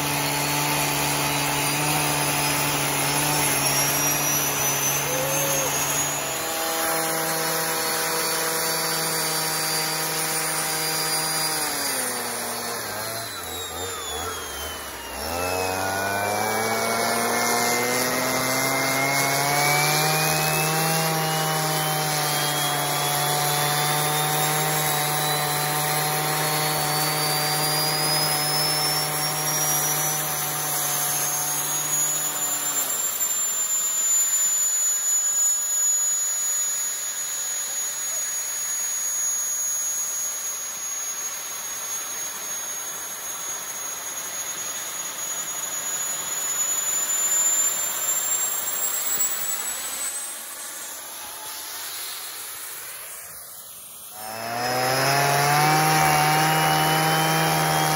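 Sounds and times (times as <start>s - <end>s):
leaf blower running: 0.0s - 57.9s
turbo high whine: 0.0s - 57.9s.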